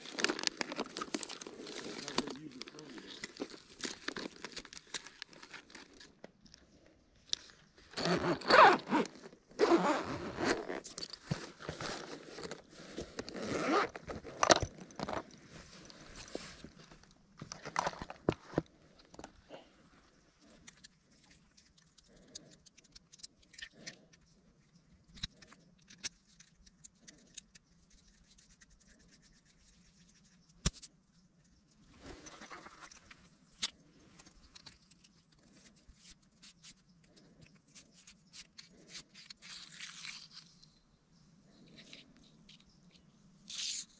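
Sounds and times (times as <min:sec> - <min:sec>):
gear rustling and rattling: 0:00.0 - 0:24.2.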